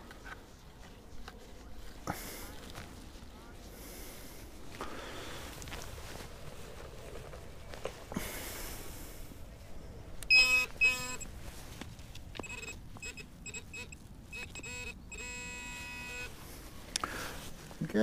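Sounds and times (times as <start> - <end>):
metal detector beeping: 10.2 - 11.3, 12.4 - 16.4.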